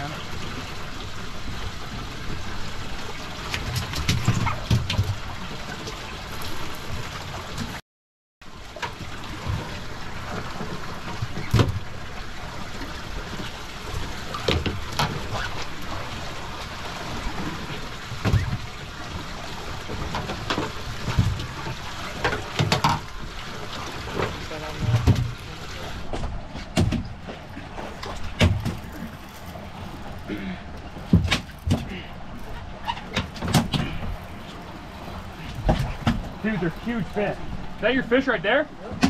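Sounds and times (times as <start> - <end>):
water sloshing against boat hull: 0.0 - 7.8, 8.6 - 38.2.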